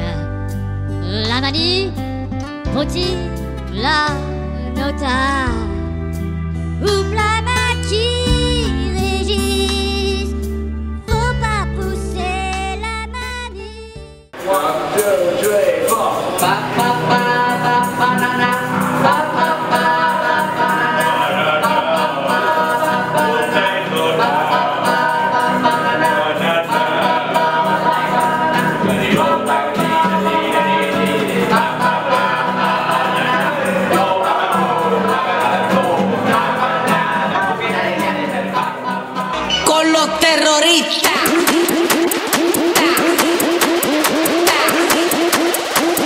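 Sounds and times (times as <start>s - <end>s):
acoustic guitar: 0.0s - 46.0s
group singing: 16.2s - 46.0s.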